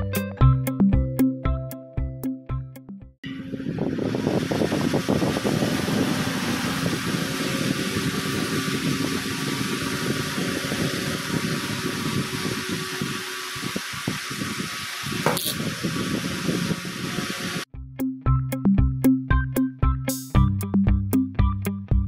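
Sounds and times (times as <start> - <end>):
small motor spinning fan whirring: 3.2 - 17.7.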